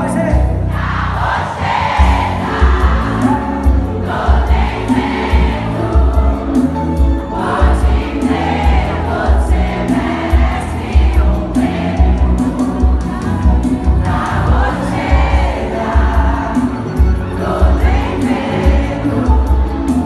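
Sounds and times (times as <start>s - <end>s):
live band music: 0.0s - 20.0s
many voices singing: 0.1s - 20.0s
heavy bass beat: 1.8s - 6.8s, 7.6s - 20.0s.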